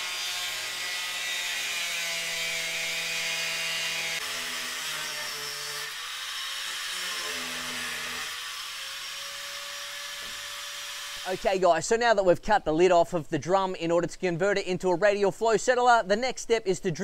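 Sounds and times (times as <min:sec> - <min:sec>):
angle grinder cutting plastic: 0:00.0 - 0:11.4.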